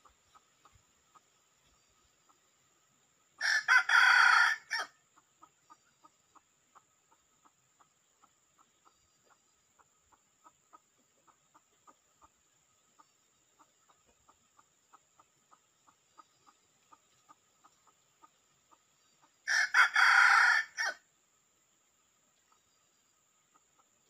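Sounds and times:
rooster crowing: 3.4s - 4.9s, 19.5s - 21.0s
rooster clucking: 3.4s - 8.7s, 13.6s - 21.0s.

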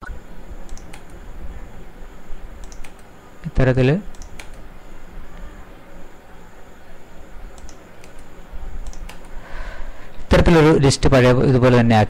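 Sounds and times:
background hum and hiss: 0.0s - 12.0s
keyboard key clicks: 0.7s - 1.2s, 2.6s - 3.0s, 7.6s - 9.4s.

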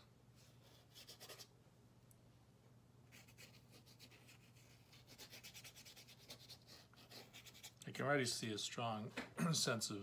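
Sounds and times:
paintbrush strokes on paper: 3.1s - 7.8s.

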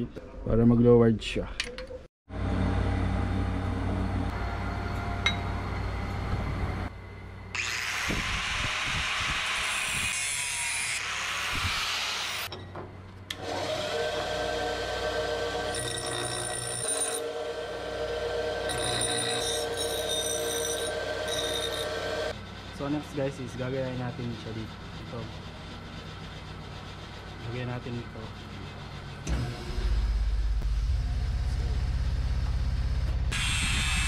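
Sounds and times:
steady low hum: 2.3s - 7.6s, 22.2s - 34.0s
angle grinder cutting steel: 7.6s - 12.5s, 13.4s - 22.4s
bench grinder grinding steel: 13.4s - 22.4s.

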